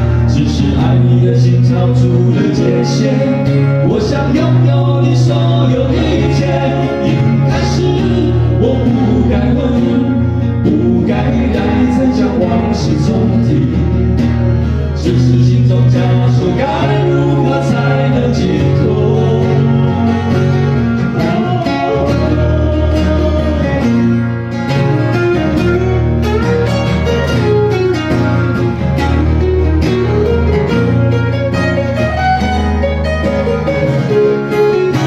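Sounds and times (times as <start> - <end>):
acoustic guitars strumming: 0.0 - 35.0.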